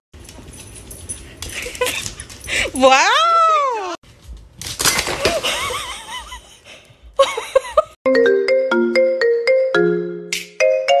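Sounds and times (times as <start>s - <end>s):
laughter: 5.2s - 8.0s
marimba-like music: 8.1s - 11.0s.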